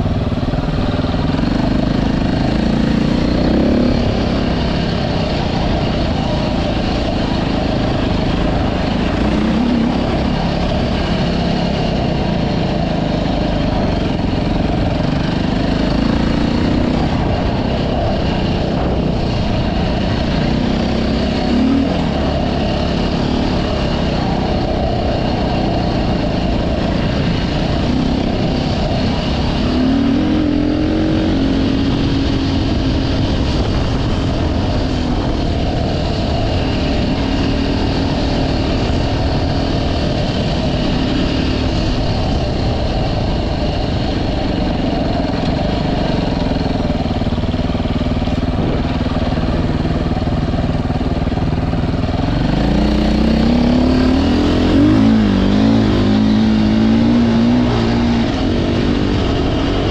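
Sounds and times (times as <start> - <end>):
constant rushing noise: 0.0 - 59.9
vehicle engine running: 0.0 - 59.9.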